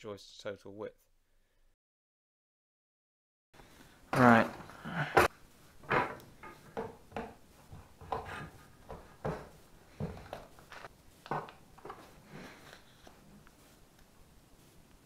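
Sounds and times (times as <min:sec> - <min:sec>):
cable and tools knocking on floorboards: 0:05.2 - 0:12.1.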